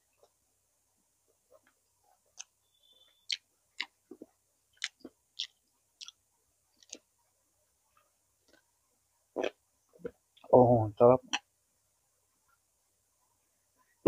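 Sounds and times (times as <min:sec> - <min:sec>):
wet mouth smacks and chewing: 0:03.3 - 0:06.2, 0:06.8 - 0:07.0.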